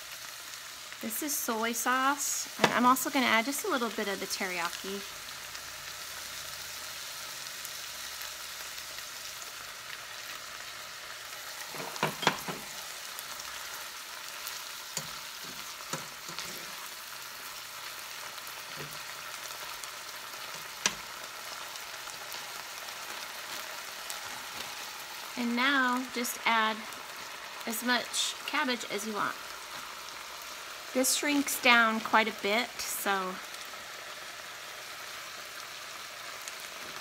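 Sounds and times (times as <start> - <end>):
food sizzling in a frying pan: 0.0 - 37.0
spatula scraping a pan: 14.4 - 17.0, 18.5 - 19.2.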